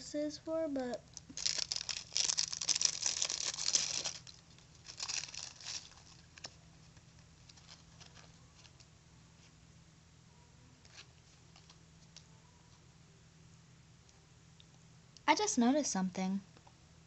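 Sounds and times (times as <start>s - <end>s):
packaging crinkling and tearing: 1.1s - 8.9s.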